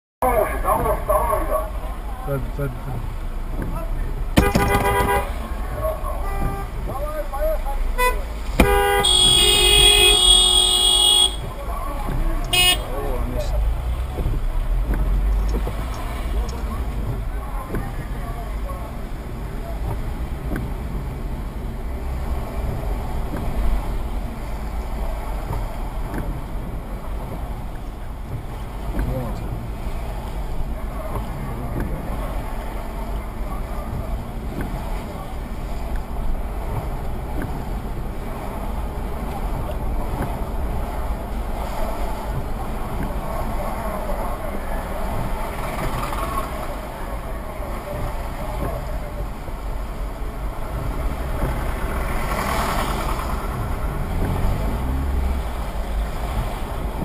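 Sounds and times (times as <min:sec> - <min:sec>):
car engine and tyres rumbling: 0:00.2 - 0:57.0
windscreen wiper ticks: 0:00.3 - 0:57.0.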